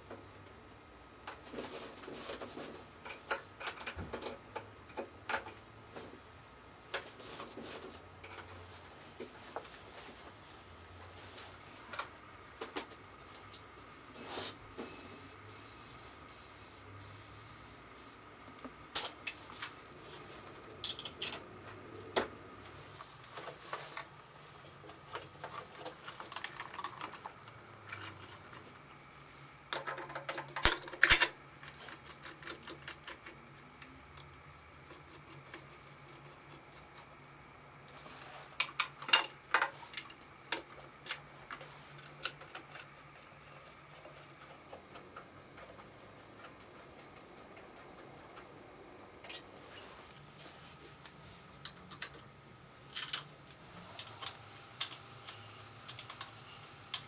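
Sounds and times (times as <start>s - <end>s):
small parts clicking and knocking: 3.0s - 5.6s, 20.8s - 21.5s, 24.8s - 28.8s, 29.7s - 37.1s, 38.5s - 47.6s, 51.6s - 57.0s.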